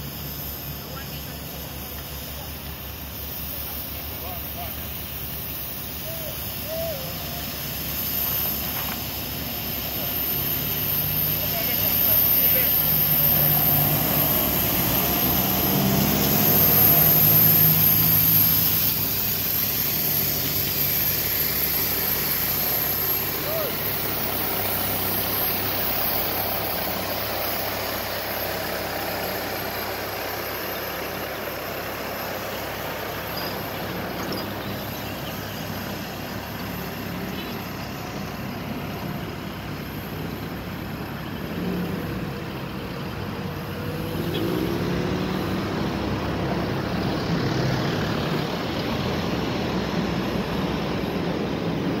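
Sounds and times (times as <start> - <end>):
line marking machine running: 0.0 - 52.0
road traffic: 0.0 - 52.0.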